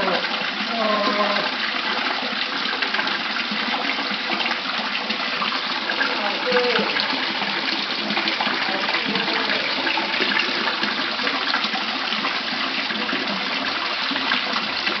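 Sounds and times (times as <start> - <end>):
pond water running and splashing: 0.0 - 15.0.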